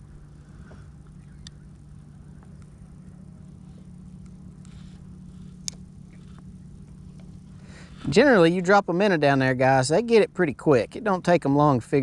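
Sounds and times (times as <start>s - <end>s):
faint low hum: 0.0s - 12.0s
light clicks of fishing reel: 0.6s - 2.8s, 4.2s - 7.4s.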